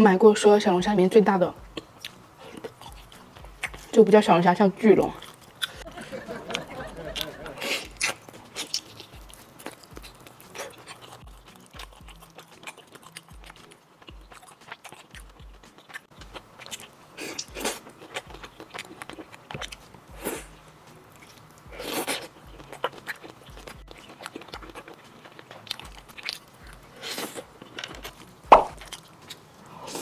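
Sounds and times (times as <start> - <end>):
faint background music: 0.0 - 30.0
biting and chewing: 1.6 - 4.0, 5.0 - 30.0
wet clicks and smacks: 1.8 - 4.0.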